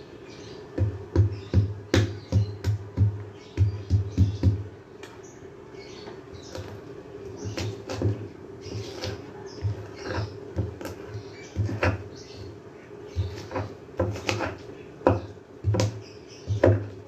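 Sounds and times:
stone pestle pounding in mortar: 0.8s - 4.6s.

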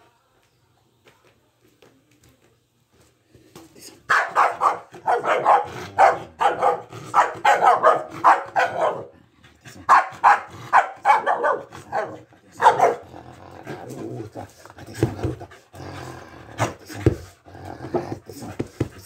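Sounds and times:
dog barking excitedly: 4.1s - 9.1s, 9.8s - 13.1s.

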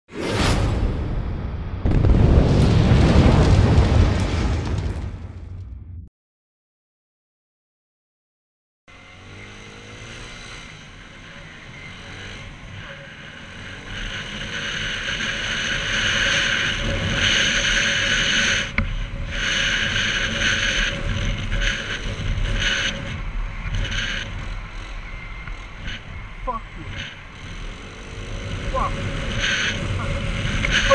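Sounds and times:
road noise: 8.9s - 30.9s
scooter engine: 8.9s - 30.9s.

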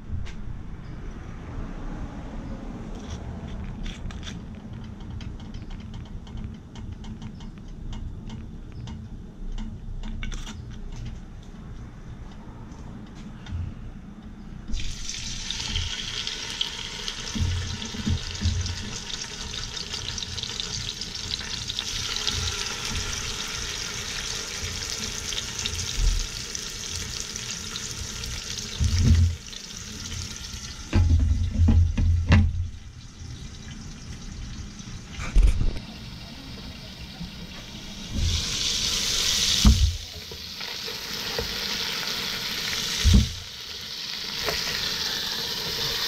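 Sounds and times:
fish sizzling in oil: 14.7s - 30.9s, 37.9s - 46.0s.

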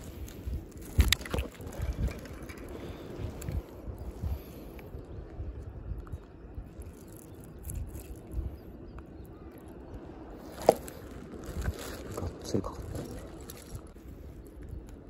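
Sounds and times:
fish handling bumps and rustles: 0.0s - 3.6s, 10.4s - 14.0s.

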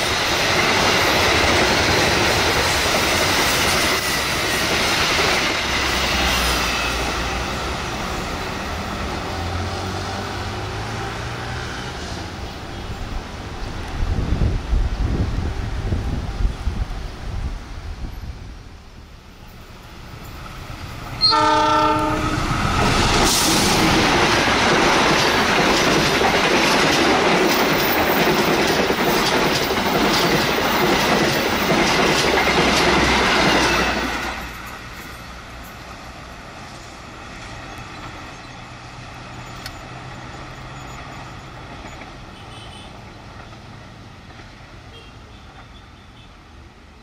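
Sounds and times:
train passing fast: 0.0s - 47.0s
train clattering over rail joints: 21.0s - 35.8s, 39.2s - 44.8s
locomotive horn blast: 21.2s - 22.6s, 42.3s - 43.0s.

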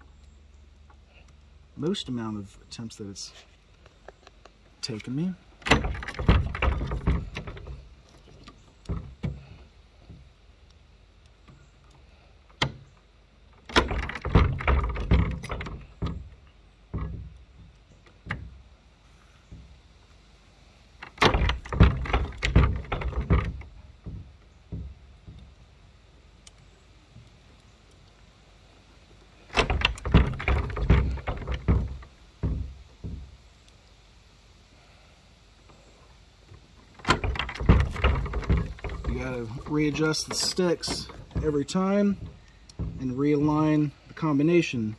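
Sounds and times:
padlock clicks and clanks: 4.1s - 9.4s, 13.6s - 18.6s, 29.5s - 32.7s
padlock rattling against metal latch: 4.2s - 9.4s, 13.6s - 17.4s, 21.0s - 24.3s, 29.5s - 32.6s, 36.9s - 43.5s.

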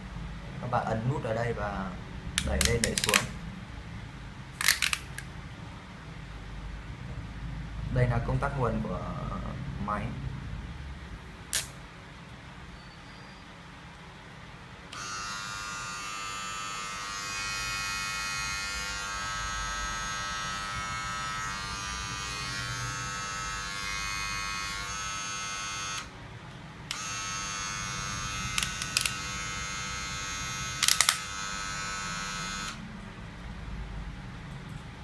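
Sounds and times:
hair clipper buzzing: 2.4s - 3.3s, 14.9s - 26.1s, 26.9s - 32.8s
sharp clicks from handling clipper: 2.4s - 3.3s, 4.6s - 5.3s, 11.5s - 11.8s, 28.5s - 29.3s, 30.8s - 31.4s.

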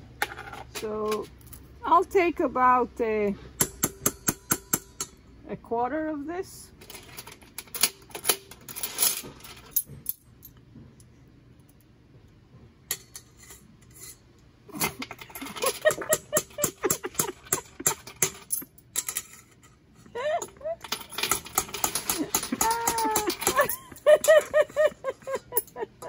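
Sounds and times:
utensil clinking and scraping container: 12.9s - 26.0s.

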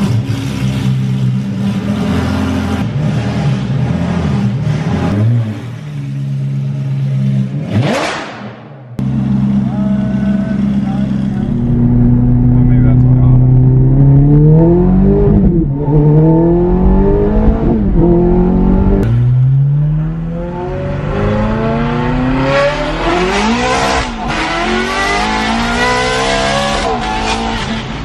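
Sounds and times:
car engine accelerating: 9.0s - 28.0s.

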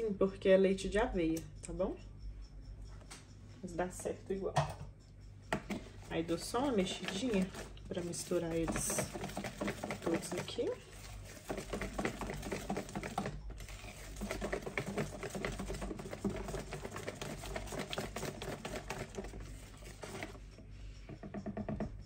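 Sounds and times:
whisk clicking against bowl: 5.5s - 22.0s.

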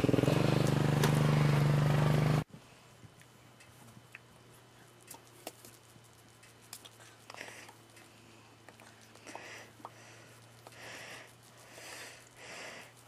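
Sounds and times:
small gasoline engine running: 0.0s - 2.5s.

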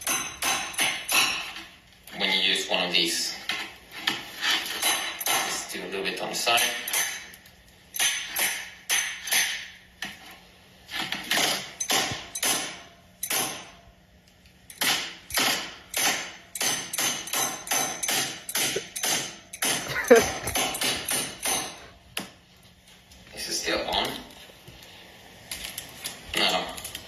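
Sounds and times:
wrench knocking on shattered glass: 0.0s - 1.6s, 4.7s - 5.6s, 6.5s - 9.8s, 11.2s - 13.8s, 14.7s - 21.8s.

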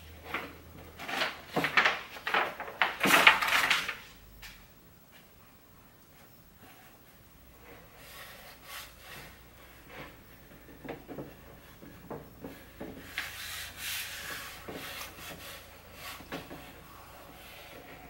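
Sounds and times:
palms rubbing vinyl wrap: 6.2s - 18.0s.

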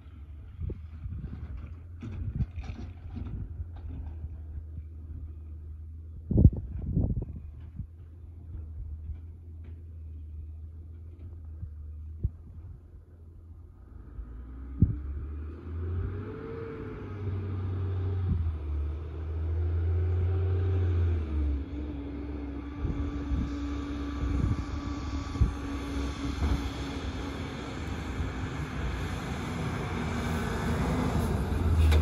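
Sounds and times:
garbage truck engines: 7.9s - 32.0s.

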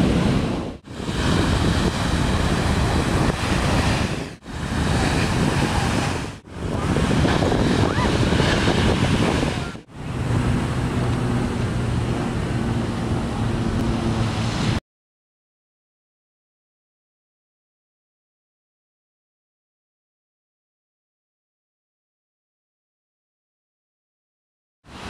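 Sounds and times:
waves crashing: 0.0s - 14.8s
wind noise on microphone: 0.0s - 14.8s.

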